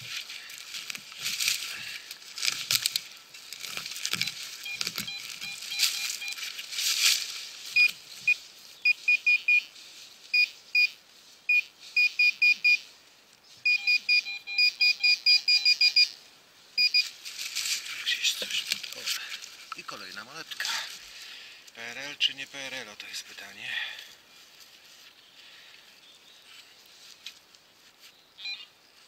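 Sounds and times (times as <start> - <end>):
short high beeps: 4.2 - 6.4, 8.9 - 9.7, 13.6 - 16.2.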